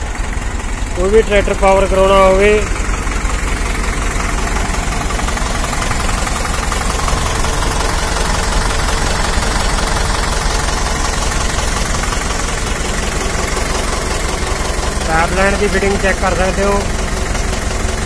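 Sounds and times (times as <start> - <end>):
diesel tractor engine idling: 0.0 - 18.0.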